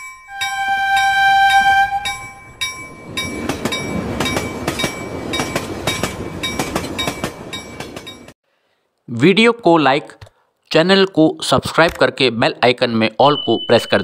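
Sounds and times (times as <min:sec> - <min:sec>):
chime ringing: 0:00.0 - 0:08.3
train horn: 0:00.3 - 0:02.4
train wheels clattering: 0:00.6 - 0:08.4.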